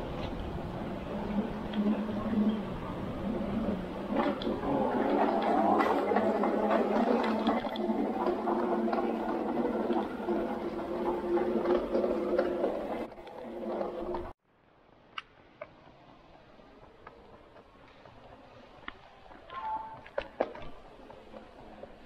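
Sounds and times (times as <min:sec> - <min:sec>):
suitcase wheels clattering: 0:01.1 - 0:14.4.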